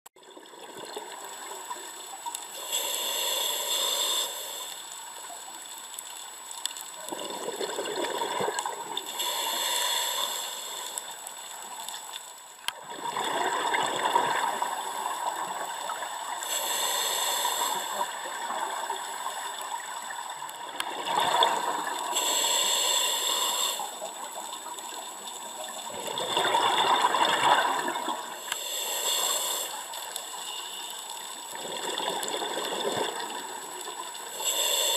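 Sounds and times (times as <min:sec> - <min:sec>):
regulator breathing hiss: 0:01.9 - 0:05.3, 0:09.0 - 0:12.2, 0:16.3 - 0:18.4, 0:22.0 - 0:25.8, 0:28.4 - 0:31.4, 0:34.2 - 0:34.9
exhaled bubbles rushing: 0:07.1 - 0:09.0, 0:12.8 - 0:15.8, 0:20.9 - 0:22.1, 0:25.8 - 0:28.4.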